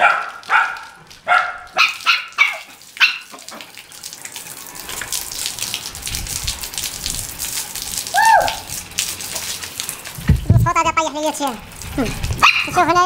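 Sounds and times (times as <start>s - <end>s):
dog barking: 0.0s - 3.4s, 12.4s - 12.8s
hose water splashing on concrete: 0.0s - 13.0s.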